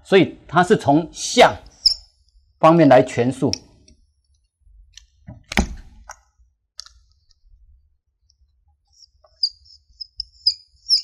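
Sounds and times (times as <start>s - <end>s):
marker squeaking on whiteboard: 1.7s - 2.2s, 8.9s - 11.0s.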